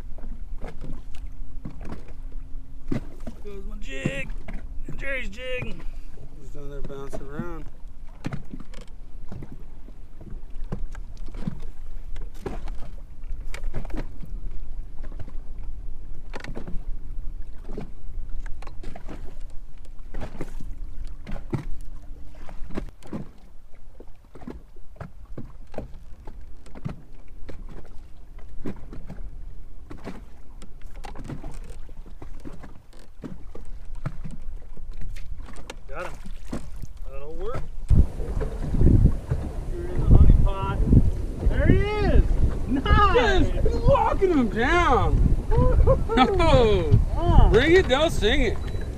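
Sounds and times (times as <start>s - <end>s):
waves slapping boat hull: 0.0s - 48.9s
wind rumble on microphone: 36.7s - 48.9s.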